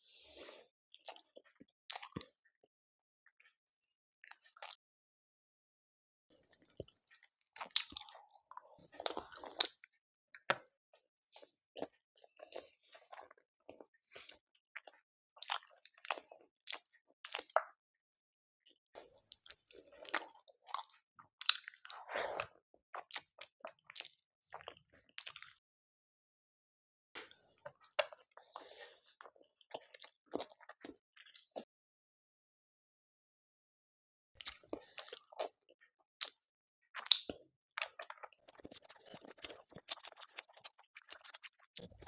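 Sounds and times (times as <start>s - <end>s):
close chewing mouth sounds: 0.9s - 2.3s, 6.5s - 9.9s, 11.4s - 17.7s, 19.3s - 25.6s, 34.4s - 42.0s.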